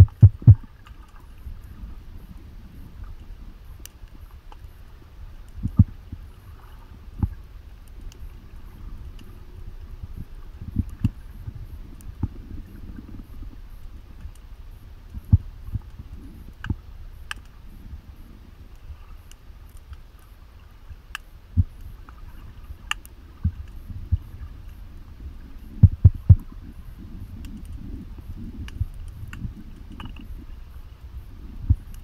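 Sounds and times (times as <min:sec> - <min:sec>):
muffled underwater rumble: 0:00.0 - 0:32.0.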